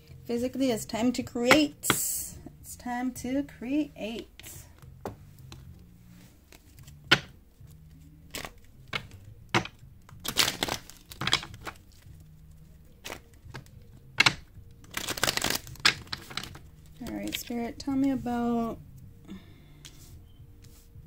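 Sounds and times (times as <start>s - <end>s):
cards rustling: 4.0s - 18.2s
cards snapping: 6.5s - 17.6s.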